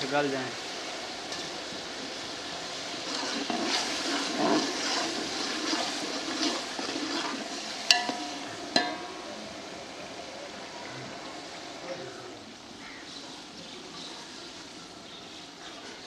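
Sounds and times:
ladle stirring sloshing liquid: 0:03.1 - 0:09.2
ladle clinking on metal pot: 0:07.9 - 0:09.3.

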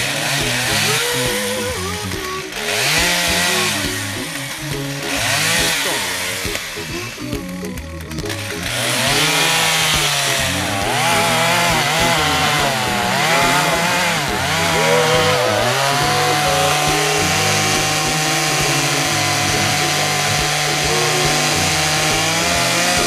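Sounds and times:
chainsaw cutting wood: 0:00.0 - 0:07.2, 0:08.2 - 0:23.0.

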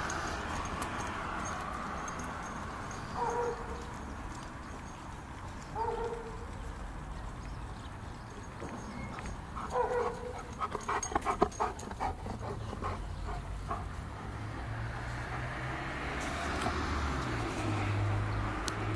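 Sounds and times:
dog panting and scuffling: 0:08.6 - 0:14.4.

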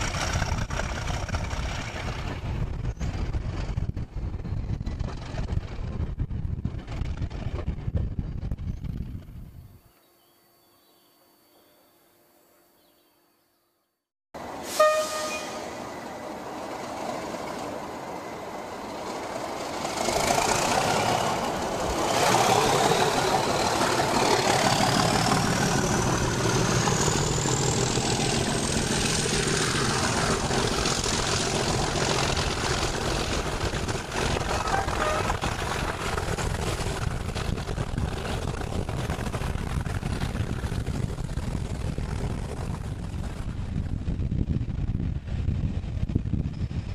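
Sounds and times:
diesel locomotive accelerating: 0:00.0 - 0:09.8, 0:14.4 - 0:46.9
rising engine whine: 0:14.4 - 0:46.9
short sharp tone: 0:14.7 - 0:15.8.

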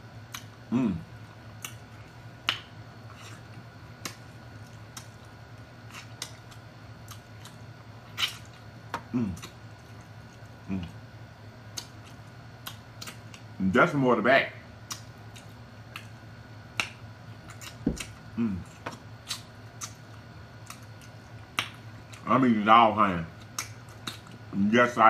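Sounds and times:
wet lip smacks and mouth clicks: 0:00.3 - 0:00.5, 0:01.6 - 0:01.8, 0:02.4 - 0:05.2, 0:05.9 - 0:08.6, 0:11.7 - 0:13.5, 0:14.8 - 0:16.2, 0:18.8 - 0:22.2, 0:23.4 - 0:24.4
person humming: 0:00.7 - 0:01.0, 0:09.1 - 0:09.5, 0:18.4 - 0:18.7.

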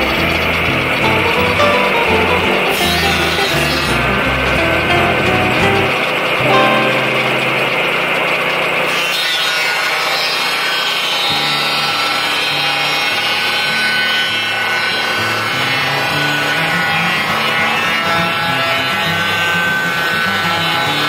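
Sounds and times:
sawmill blade sawing log: 0:08.1 - 0:21.0.

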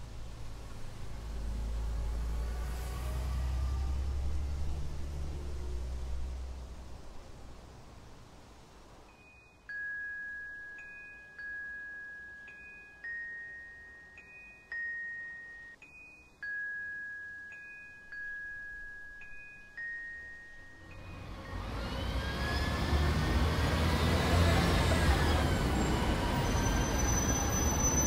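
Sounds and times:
glockenspiel film score music: 0:09.1 - 0:28.0.

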